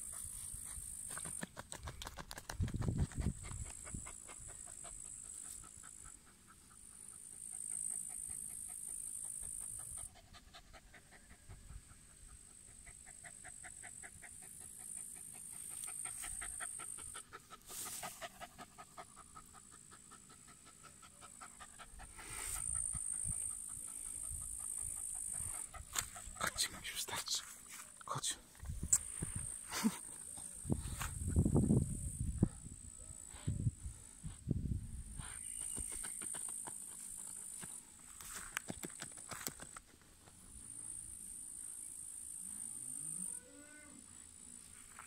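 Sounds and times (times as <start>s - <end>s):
dog panting rapidly: 0.0s - 26.9s.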